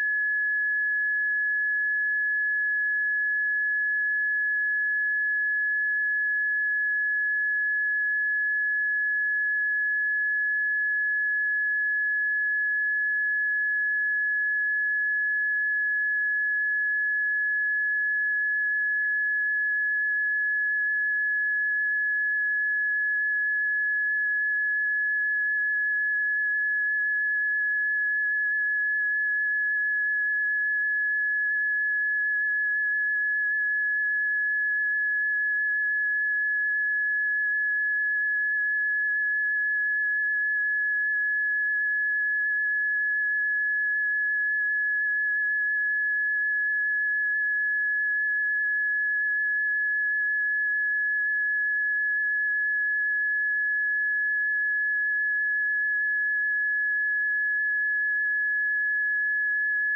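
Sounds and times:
steady high-pitched sine tone: 0.0s - 59.9s.

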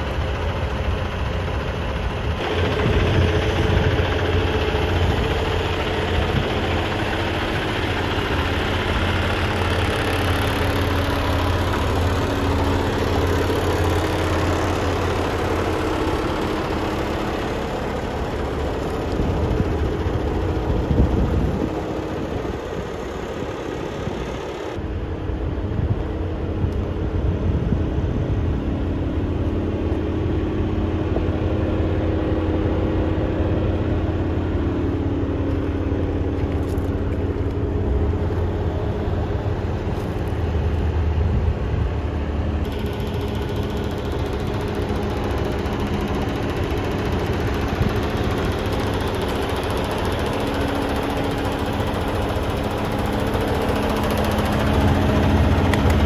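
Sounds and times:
diesel engine idling: 0.0s - 56.0s.

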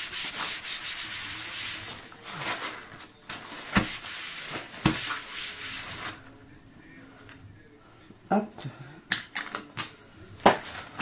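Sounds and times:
hand rubbing a surface: 0.0s - 2.0s, 3.7s - 6.2s.

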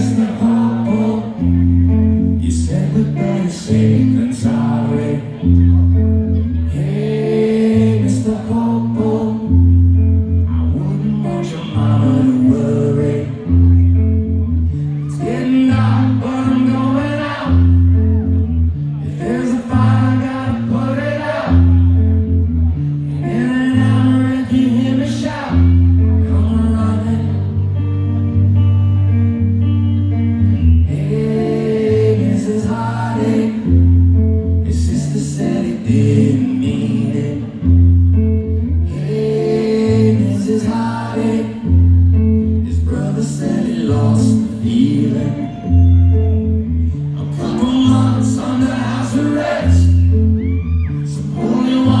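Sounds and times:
man singing through pa: 0.0s - 1.6s, 2.4s - 5.4s, 6.7s - 9.6s, 10.6s - 13.6s, 15.0s - 17.8s, 19.0s - 22.0s, 23.1s - 27.6s, 30.8s - 33.8s, 34.6s - 37.7s, 38.8s - 41.7s, 42.5s - 46.2s, 47.2s - 50.2s, 51.0s - 52.0s
acoustic guitar chords: 0.0s - 52.0s.

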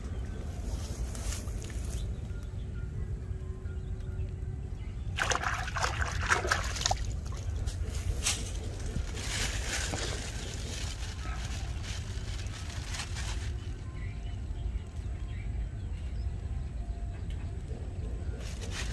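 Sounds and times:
mud squelching and splashing: 5.2s - 13.2s
low rumble: 6.0s - 18.9s.

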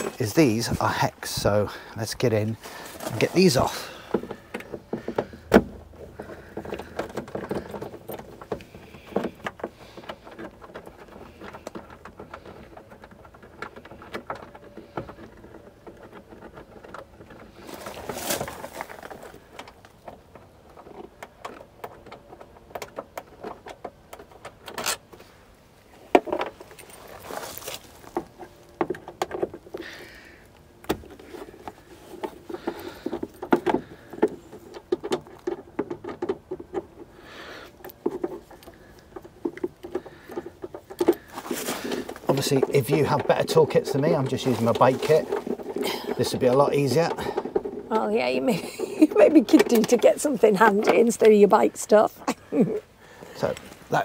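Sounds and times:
clothing rustling: 2.6s - 4.5s, 17.6s - 19.4s, 26.5s - 28.8s, 40.6s - 46.4s.

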